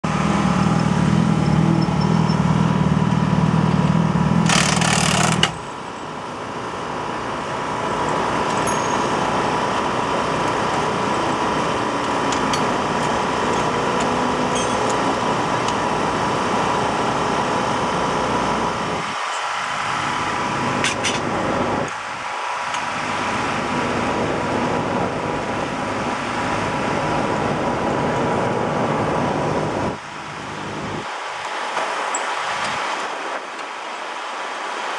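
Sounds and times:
motorcycle engine running: 0.0 - 19.0
background engine noise: 0.0 - 34.9
tools clicking and knocking: 12.0 - 15.0.

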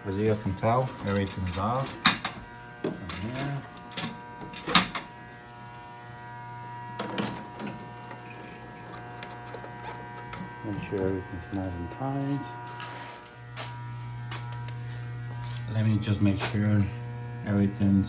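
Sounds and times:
steady machine hum: 0.0 - 18.0.

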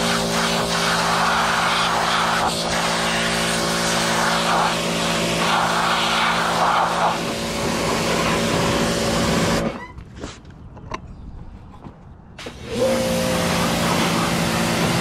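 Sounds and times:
water jet spraying: 0.0 - 9.6
pressure washer motor hum: 0.0 - 9.7, 12.4 - 15.0.

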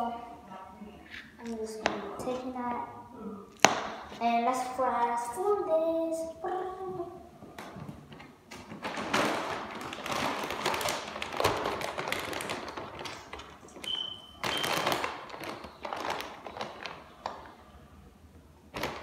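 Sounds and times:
plastic bag crinkling: 8.6 - 17.6.

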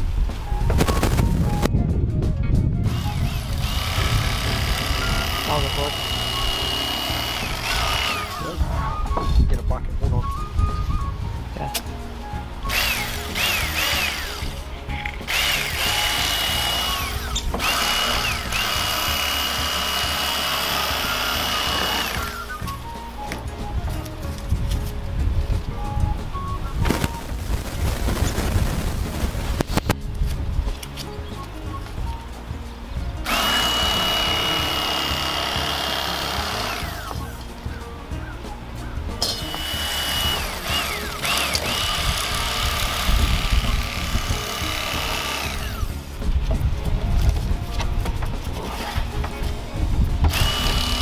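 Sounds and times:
background music: 0.0 - 51.0
electric fillet knife whine: 2.9 - 8.5, 12.6 - 14.6, 15.2 - 22.7, 33.3 - 37.3, 39.4 - 46.0, 50.3 - 51.0.

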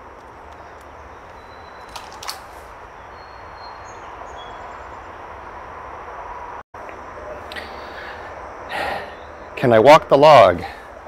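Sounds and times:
distant highway traffic: 0.0 - 11.0
sharp clicks: 0.2 - 2.6.

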